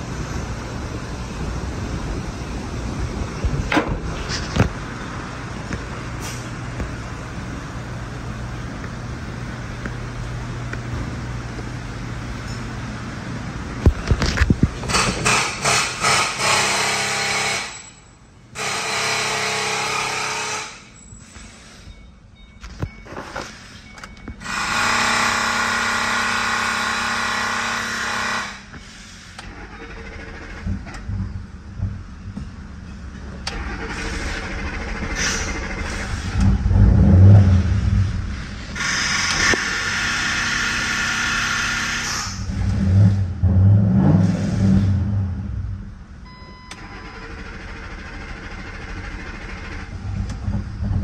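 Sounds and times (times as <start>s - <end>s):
car engine idling: 29.4s - 43.5s, 44.5s - 51.0s.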